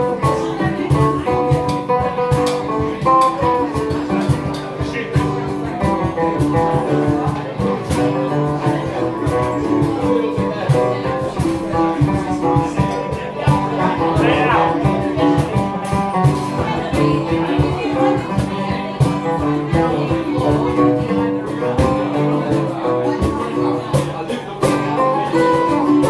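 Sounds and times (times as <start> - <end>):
acoustic guitars strumming: 0.0 - 26.0.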